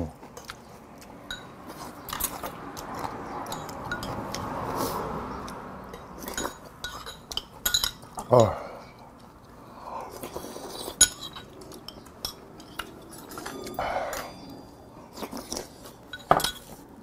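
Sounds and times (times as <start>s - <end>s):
spoon and chopsticks clinking on bowls: 1.2s - 4.4s, 5.8s - 8.6s, 10.8s - 16.8s.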